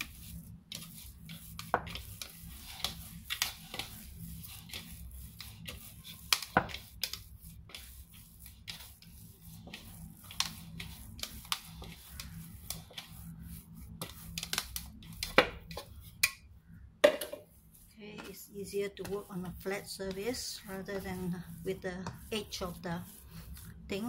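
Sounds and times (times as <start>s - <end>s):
hands kneading dough: 0.0s - 16.5s, 17.4s - 24.0s
low steady hum: 0.0s - 24.0s.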